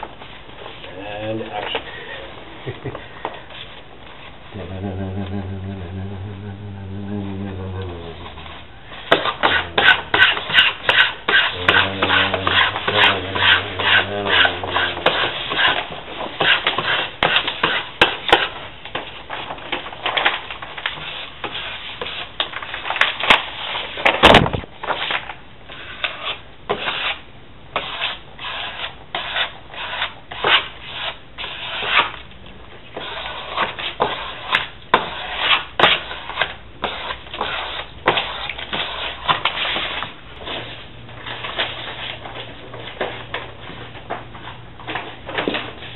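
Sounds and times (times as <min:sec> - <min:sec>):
hand rubbing wall panel: 0:02.8 - 0:18.5.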